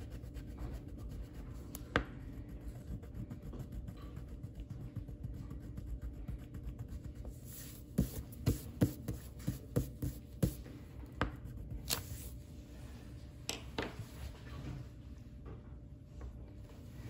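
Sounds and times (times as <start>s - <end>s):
coloring tool scratching on paper: 0.0s - 10.6s.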